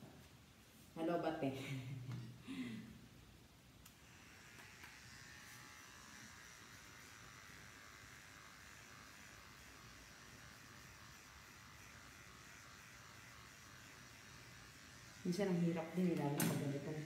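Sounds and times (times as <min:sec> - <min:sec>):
hair clipper buzzing: 0:03.8 - 0:17.0.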